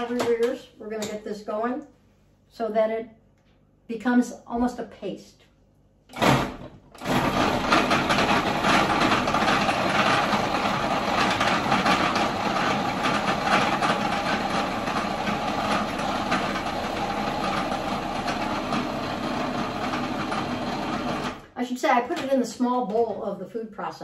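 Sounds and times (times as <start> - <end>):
food processor motor running: 6.2 - 21.5.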